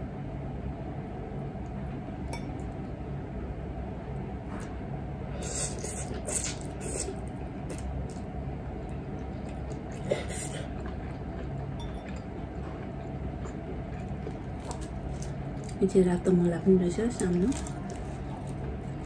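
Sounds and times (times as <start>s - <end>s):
steady low hum: 0.0s - 19.0s
chewing: 8.9s - 15.8s, 17.2s - 19.0s.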